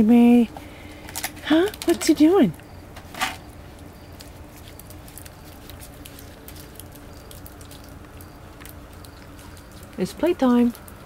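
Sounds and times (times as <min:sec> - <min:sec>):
steady low hum: 0:00.0 - 0:11.0
puppy claws clicking on concrete: 0:04.2 - 0:11.0.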